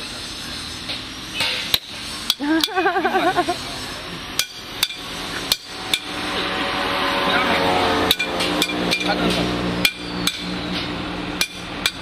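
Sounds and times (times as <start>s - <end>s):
hammer striking metal on anvil: 1.4s - 2.8s, 4.4s - 6.2s, 8.1s - 12.0s.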